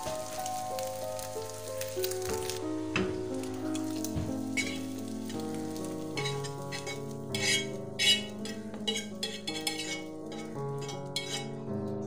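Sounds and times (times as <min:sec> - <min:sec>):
instrumental music: 0:00.0 - 0:12.0
scraping frying pan: 0:04.3 - 0:11.7.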